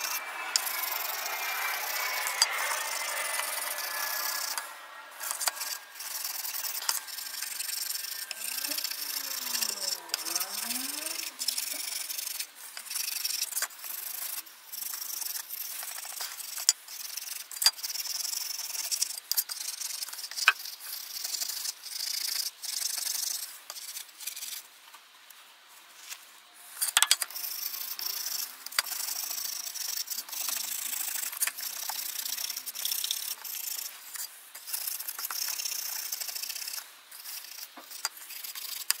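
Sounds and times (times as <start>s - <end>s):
wire wool scratching metal sheet: 0.0s - 24.7s, 26.8s - 39.0s.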